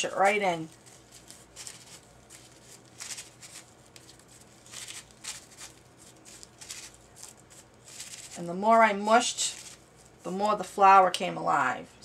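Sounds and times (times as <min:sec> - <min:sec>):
paper crinkling: 0:00.0 - 0:08.6, 0:09.4 - 0:10.3.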